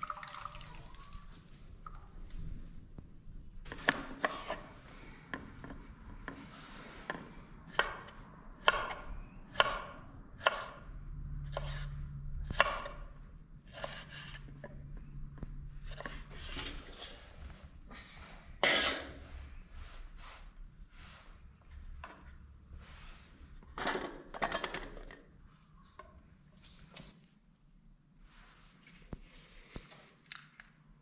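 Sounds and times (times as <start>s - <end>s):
knife chopping on board: 8.6s - 10.8s.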